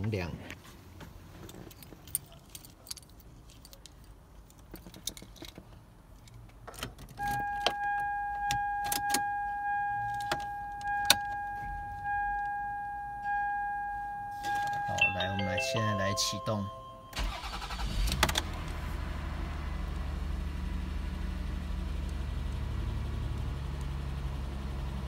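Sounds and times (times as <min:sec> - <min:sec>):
car keys jangling: 0:01.4 - 0:18.4
key clicking into ignition: 0:06.2 - 0:09.4, 0:10.0 - 0:11.6
electronic warning chime dinging: 0:07.2 - 0:17.6.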